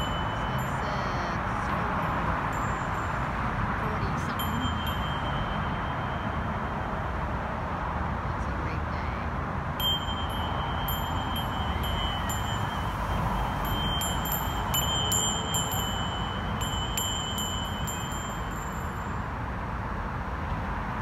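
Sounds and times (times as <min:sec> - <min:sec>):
light tinkling bell strikes: 0:00.0 - 0:07.0, 0:09.8 - 0:19.3
bell steady high tone: 0:00.0 - 0:07.7, 0:09.8 - 0:19.6
city traffic hum: 0:00.0 - 0:21.0.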